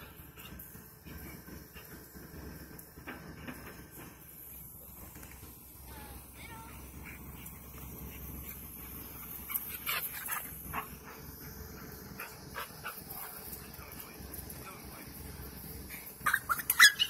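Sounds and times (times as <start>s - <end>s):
dogs yipping and barking: 16.1s - 17.0s.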